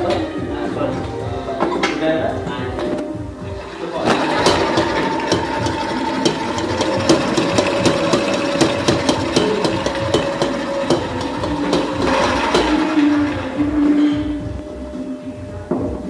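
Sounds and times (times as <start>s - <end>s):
stand mixer whine: 3.4s - 14.1s
beater clacking in metal bowl: 3.6s - 14.2s.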